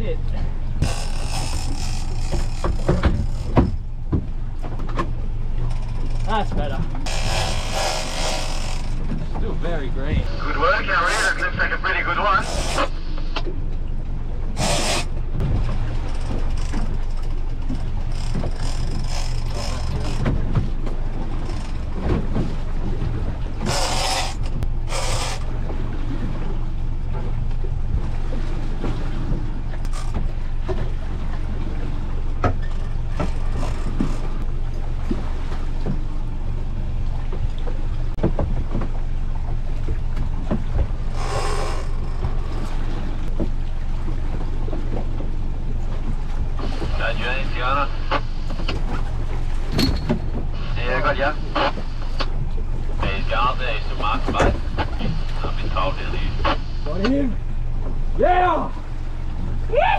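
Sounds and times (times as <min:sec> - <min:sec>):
outboard motor humming: 0:00.0 - 0:59.9
water noise: 0:00.0 - 0:59.9
wind: 0:00.0 - 0:59.9
short noisy bursts: 0:14.6 - 0:15.1, 0:23.7 - 0:25.5.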